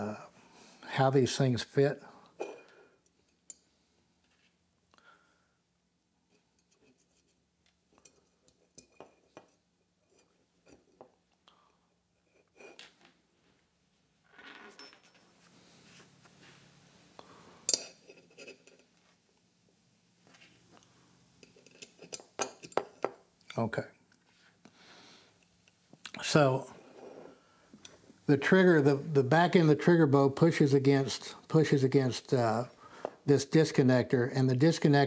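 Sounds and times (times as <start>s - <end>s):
soft rustle: 15.3s - 17.7s.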